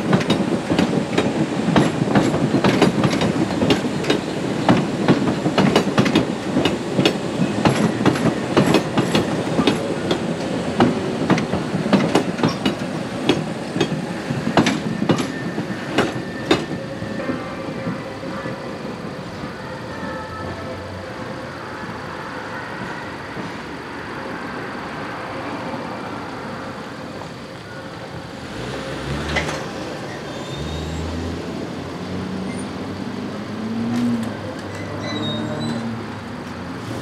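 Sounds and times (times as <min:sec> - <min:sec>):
train running on tracks: 0:00.0 - 0:37.0
road vehicle engines: 0:20.4 - 0:37.0.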